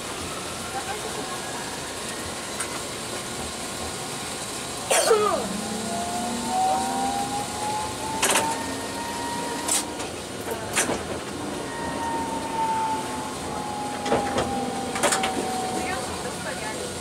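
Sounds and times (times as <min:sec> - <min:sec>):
tram motor whine: 0:00.0 - 0:17.0
wheels clacking over rail joints: 0:05.5 - 0:17.0.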